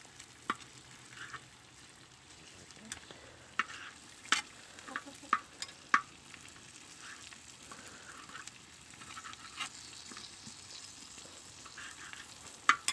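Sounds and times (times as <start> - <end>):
tripe sizzling in a pan: 0.0 - 12.9
utensils scraping a metal pan: 0.5 - 1.5, 2.9 - 5.7, 8.1 - 10.6, 11.6 - 12.9.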